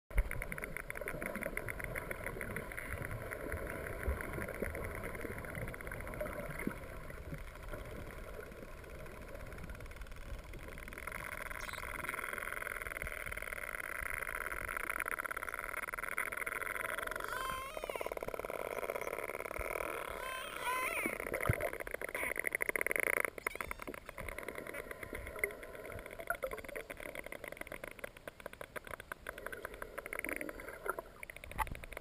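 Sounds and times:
underwater buzzing drone: 0.1 - 32.0
whale whistle: 17.2 - 18.2, 23.4 - 23.9.

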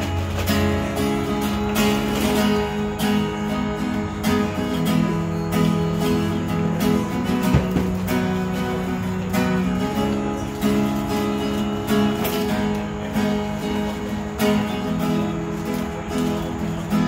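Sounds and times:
acoustic guitar strummed: 0.0 - 17.0.

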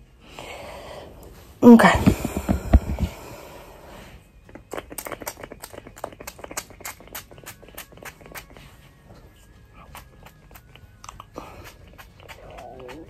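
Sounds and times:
bottle handling thumps: 1.8 - 3.1.

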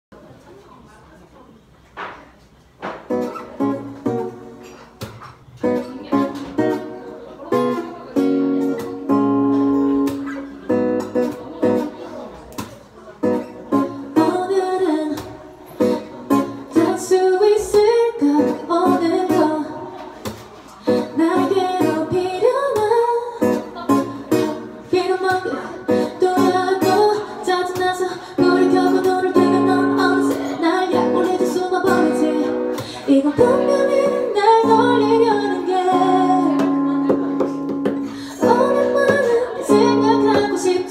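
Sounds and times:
acoustic guitar strumming: 2.9 - 40.9
woman singing: 14.0 - 20.2, 20.8 - 40.9.

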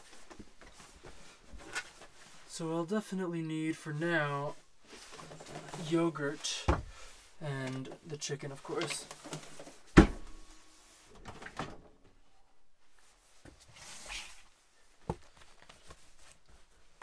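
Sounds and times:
drawer knocks and clicks: 10.0 - 10.4.

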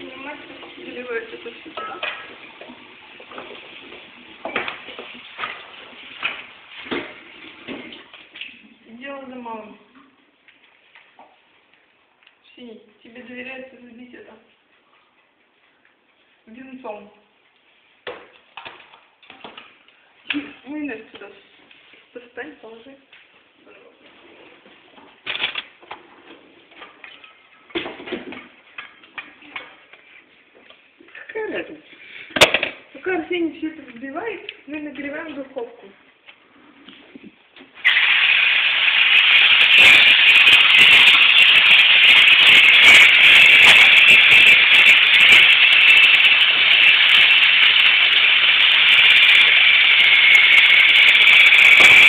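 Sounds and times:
utensils and dishes knocking: 1.8 - 2.4, 39.7 - 47.4
hand mixer clicking: 37.8 - 52.0.

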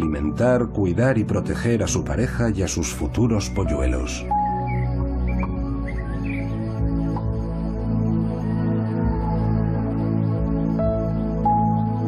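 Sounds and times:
soft music of sustained chords: 0.0 - 12.0
high bird chirps: 4.4 - 6.6.

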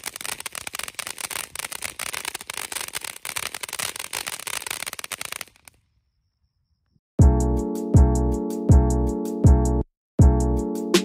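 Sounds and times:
firework fountain hissing and crackling: 0.0 - 5.8.

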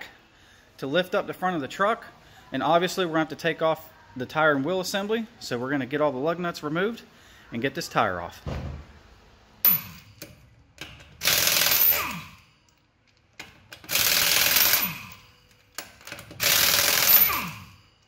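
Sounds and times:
impact wrench spinning: 9.6 - 12.6, 13.6 - 18.0.

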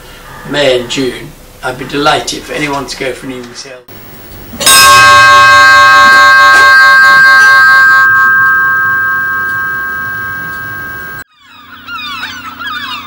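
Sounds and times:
ship's bell ringing: 4.6 - 11.2.

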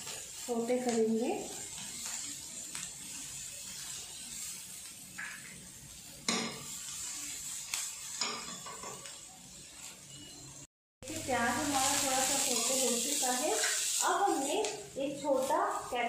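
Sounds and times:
spatula stirring in pan: 0.0 - 10.4
onions sizzling in hot oil: 0.0 - 16.0.

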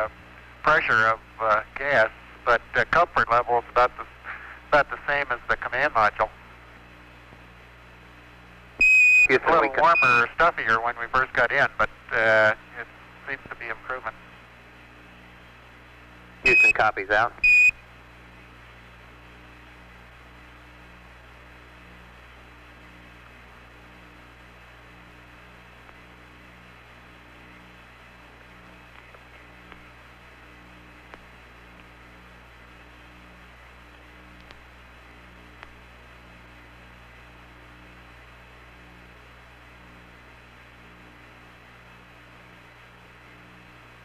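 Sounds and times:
radio hum and hiss: 0.0 - 44.0
faint clicks: 33.9 - 34.6.

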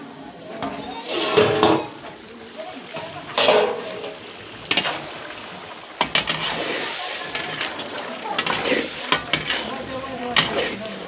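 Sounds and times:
metal ladle scraping pan: 0.6 - 2.1, 3.0 - 11.0
meat sizzling: 0.8 - 11.0
ladle clinking against pan: 3.4 - 5.0.

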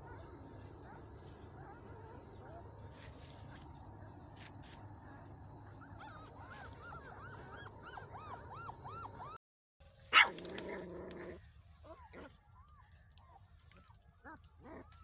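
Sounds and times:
faint low rumble: 0.0 - 9.4
puppies whimpering: 5.7 - 9.4.

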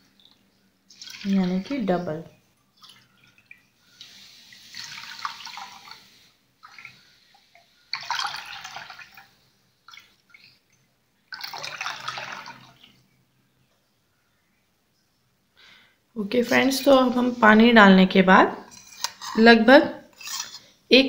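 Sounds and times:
water pouring into a bowl: 0.9 - 2.0, 2.7 - 10.7, 11.3 - 13.0.

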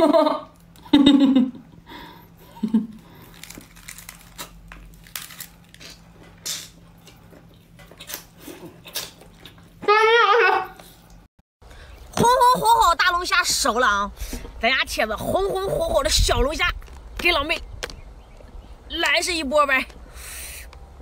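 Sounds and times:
wet chewing and sucking: 3.0 - 9.8.

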